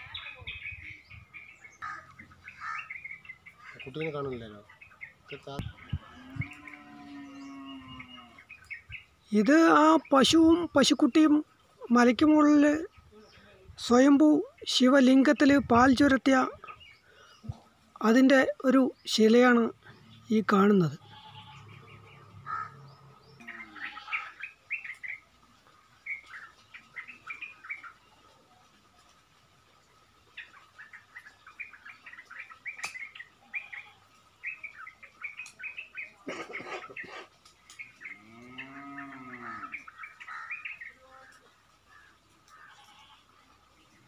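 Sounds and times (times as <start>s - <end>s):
small birds chirping: 0.0s - 44.0s
cow mooing: 5.8s - 8.5s, 38.1s - 39.8s.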